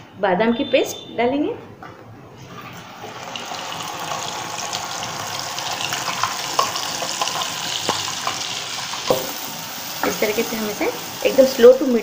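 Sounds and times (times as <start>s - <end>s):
paste sizzling in hot fat: 2.9s - 12.0s.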